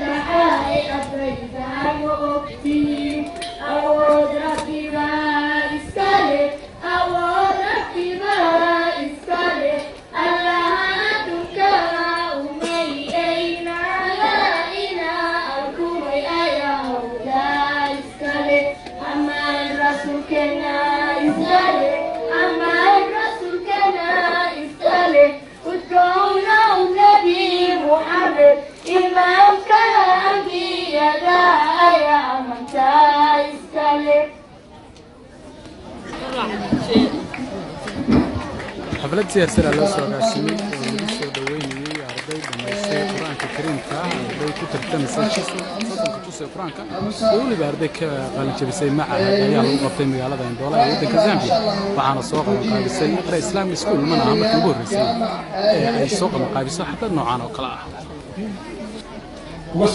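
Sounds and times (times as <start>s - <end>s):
girls chanting over loudspeakers: 0.0s - 34.4s.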